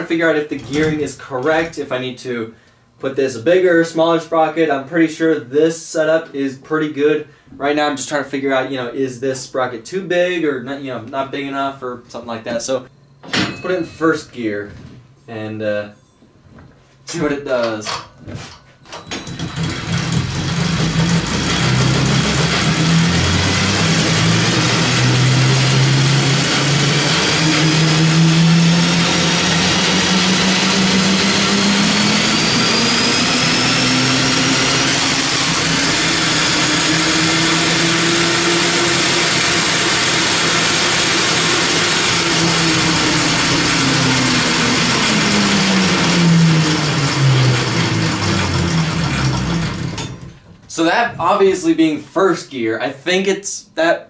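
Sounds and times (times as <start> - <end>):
drill motor whine: 19.1 - 50.3.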